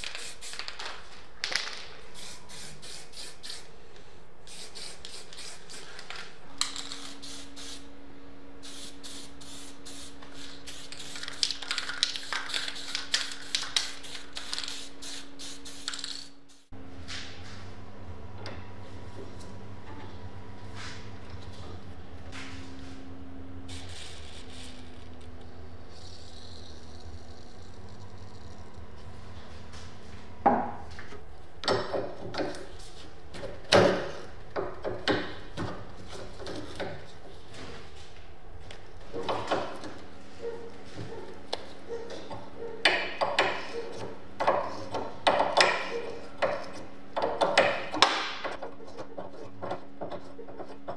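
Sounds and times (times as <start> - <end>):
spray paint can hissing: 0.0 - 0.8, 2.2 - 3.7, 4.5 - 6.0, 6.8 - 7.8, 8.6 - 16.7, 23.7 - 25.0, 25.9 - 27.5.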